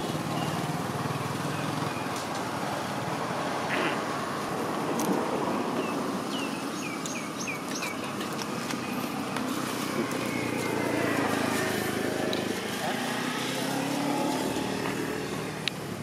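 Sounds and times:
outdoor background noise: 0:00.0 - 0:16.0
bird chirping: 0:05.8 - 0:09.1.

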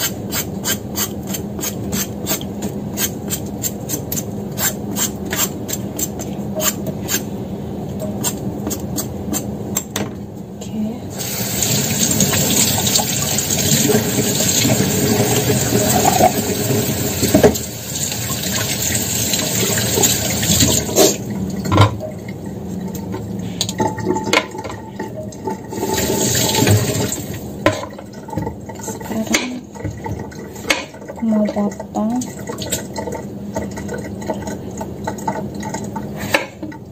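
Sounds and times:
tap water running into sink: 0:11.2 - 0:36.9.

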